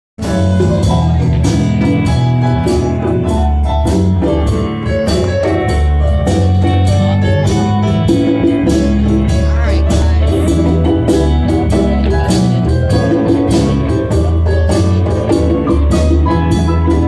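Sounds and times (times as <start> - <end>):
hand drums: 0.2 - 17.0
live band playing: 0.2 - 17.0.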